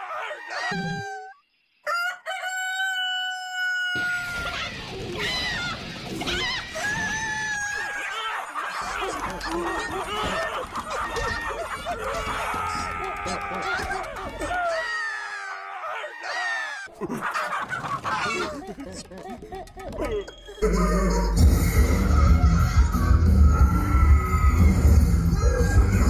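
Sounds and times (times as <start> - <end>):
cartoon rooster crowing: 0.0 - 8.1
chickens clucking and squawking: 0.0 - 12.1, 16.2 - 20.0.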